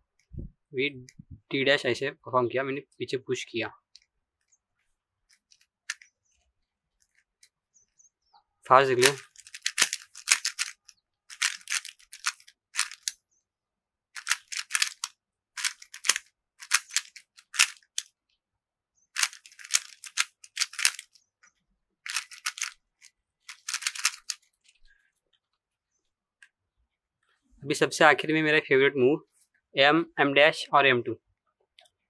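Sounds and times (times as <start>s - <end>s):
plastic puzzle cube layers clicking: 9.0s - 13.2s, 14.2s - 18.1s, 19.2s - 21.2s, 22.0s - 24.8s.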